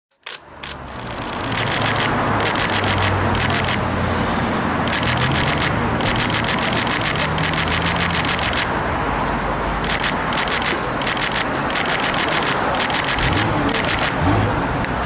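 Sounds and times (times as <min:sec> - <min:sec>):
rapid clicking: 0:00.1 - 0:03.8, 0:04.9 - 0:08.7, 0:09.8 - 0:14.2
city street traffic: 0:00.1 - 0:15.0.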